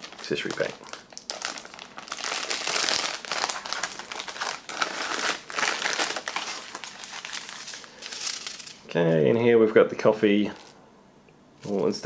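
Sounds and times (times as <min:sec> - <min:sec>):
plastic bag crinkling: 0:00.0 - 0:08.8, 0:10.4 - 0:10.8.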